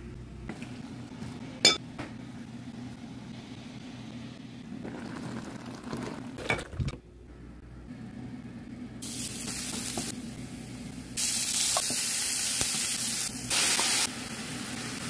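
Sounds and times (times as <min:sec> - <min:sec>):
steady low hum: 0:06.4 - 0:11.2.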